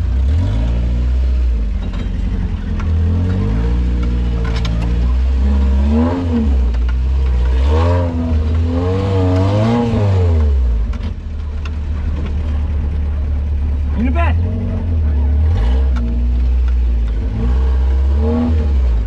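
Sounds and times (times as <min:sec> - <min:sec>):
off-road vehicle engine revving: 0:00.0 - 0:19.0
light clatter: 0:01.6 - 0:05.7, 0:10.4 - 0:13.6.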